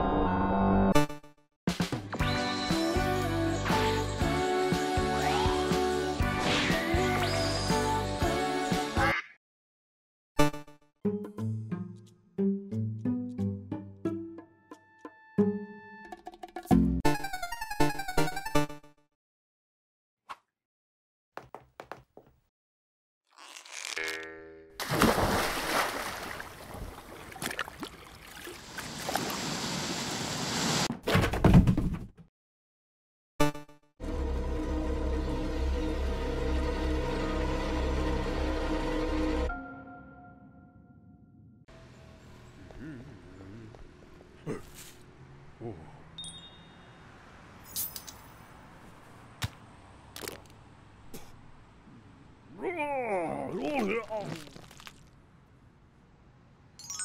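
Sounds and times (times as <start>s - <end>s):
short grunt: 42.8s - 43.8s, 44.4s - 45.0s
bright chime-like ding: 46.2s - 47.0s.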